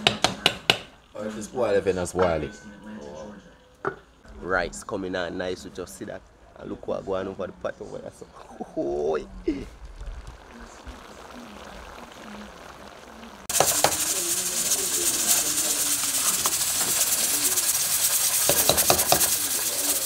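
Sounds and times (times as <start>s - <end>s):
loud steady hiss: 9.0s - 20.0s
spoon scraping metal pot: 13.5s - 20.0s.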